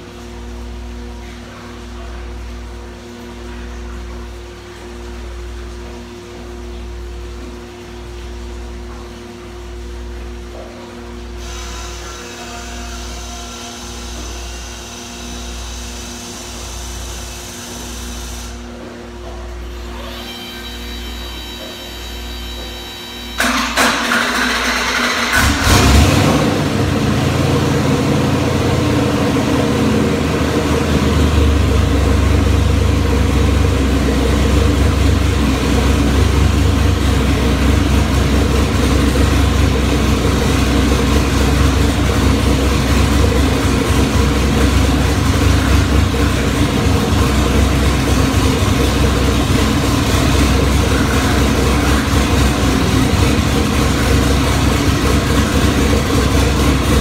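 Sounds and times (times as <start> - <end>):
engine starter cranking: 23.4 - 26.4
engine idling: 23.4 - 57.0.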